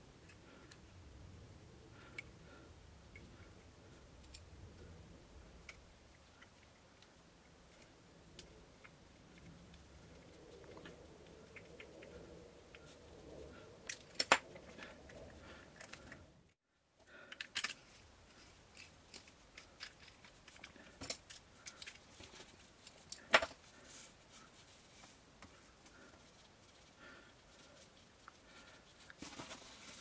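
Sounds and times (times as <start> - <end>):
small parts and tools tapping: 3.0 - 13.0, 13.8 - 16.3, 17.0 - 23.7.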